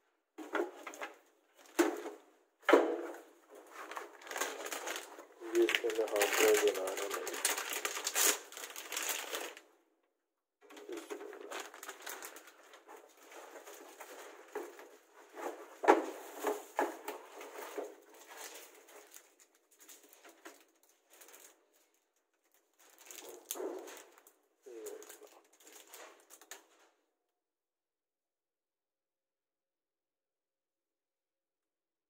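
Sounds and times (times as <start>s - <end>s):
knocks and clatter of handling: 0.4s - 5.2s, 10.7s - 26.9s
plastic wrapping crinkling: 3.5s - 9.7s, 10.7s - 26.8s.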